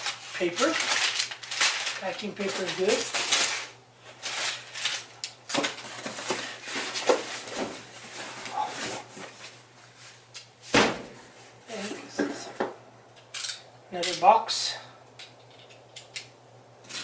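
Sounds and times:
packing paper rustling: 0.0 - 10.2.

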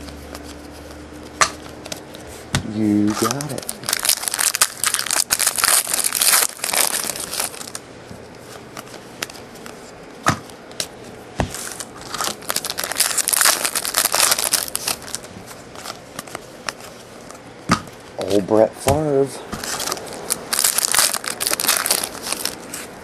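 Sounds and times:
card pack wrapper crinkling: 2.7 - 7.8, 11.6 - 17.4, 19.6 - 22.9.

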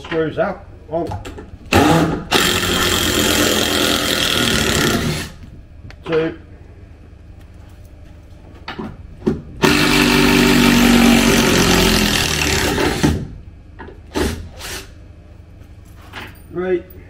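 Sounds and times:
cordless drill running: 1.7 - 5.4, 9.6 - 13.1.

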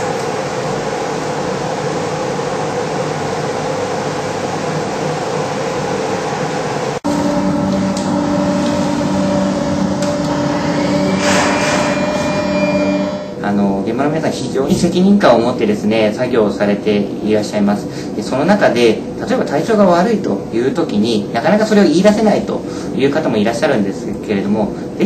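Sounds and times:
mechanical drone with low hum: 0.0 - 25.0
humming tones: 5.5 - 13.6.

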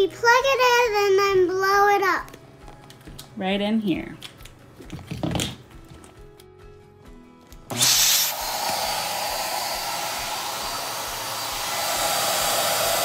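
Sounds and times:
electric air pump running: 7.7 - 13.0.

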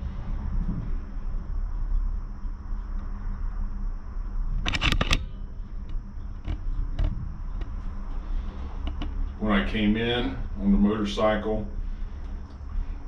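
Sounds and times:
gondola cabin rumbling on cable: 0.0 - 2.6.

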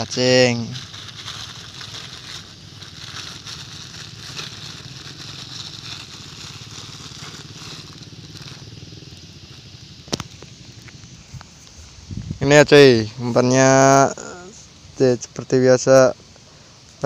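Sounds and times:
plastic bag crinkling: 0.0 - 10.8
background hiss: 0.0 - 17.0.

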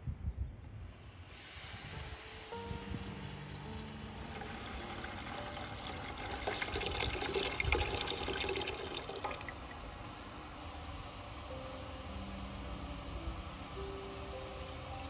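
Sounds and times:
water pouring into a pot: 4.1 - 10.0.

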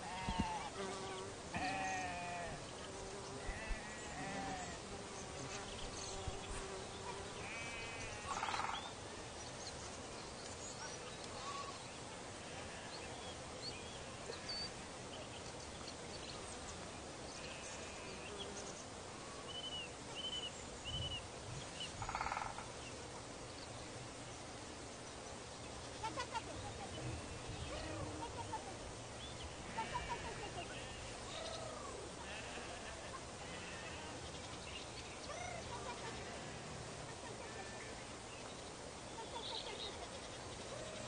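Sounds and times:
sheep bleating: 1.5 - 2.6, 3.5 - 4.8, 7.4 - 8.5, 29.6 - 31.2, 32.2 - 34.2.

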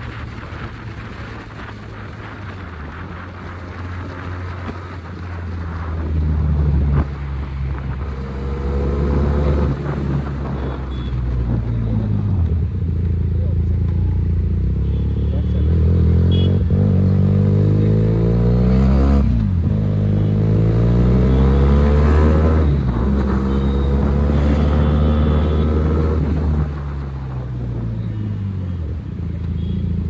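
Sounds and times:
motorcycle engine accelerating: 11.4 - 27.1.

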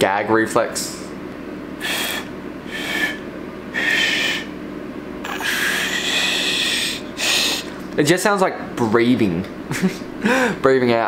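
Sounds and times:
breathy blasts of air: 1.8 - 4.6.

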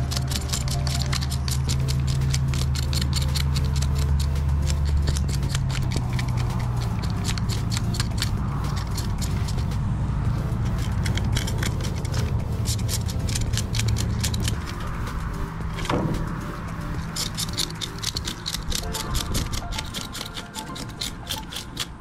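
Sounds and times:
background music with bass line: 0.0 - 21.8
rapid irregular clicking: 0.0 - 22.0.

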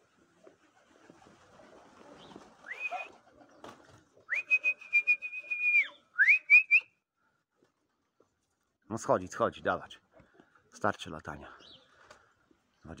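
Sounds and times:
person whistling: 2.7 - 3.1, 4.3 - 6.9.

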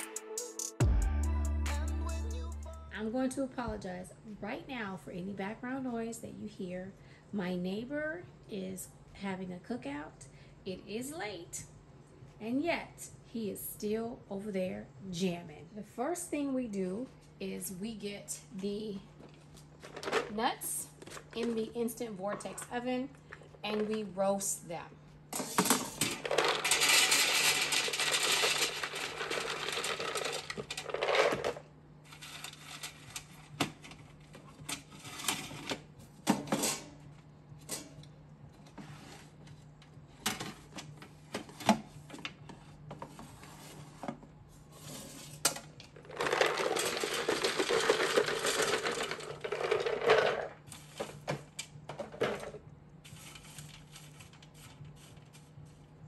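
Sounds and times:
nuts clattering onto metal trays: 25.4 - 31.6, 46.0 - 50.6.

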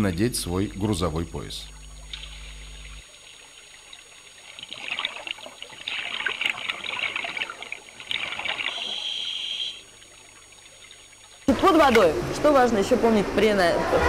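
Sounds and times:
exhaled air bubbling underwater: 0.5 - 11.5.

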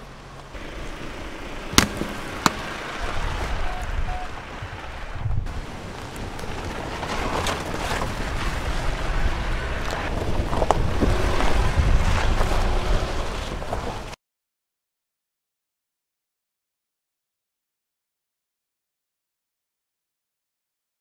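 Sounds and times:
car engine and tyre rumble: 0.0 - 14.2
stones crunching under wheels: 0.0 - 14.2
wind buffeting microphone: 2.2 - 14.1.

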